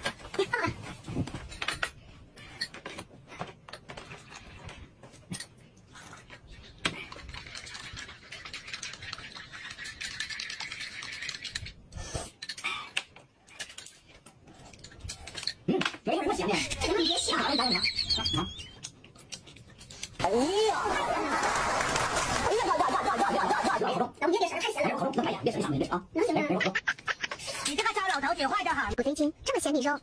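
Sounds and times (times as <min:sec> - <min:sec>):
spoons scraping glass cups: 0:07.3 - 0:12.5.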